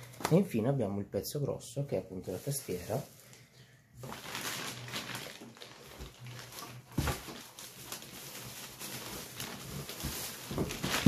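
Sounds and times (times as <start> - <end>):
plastic bag crinkling: 2.1 - 11.0.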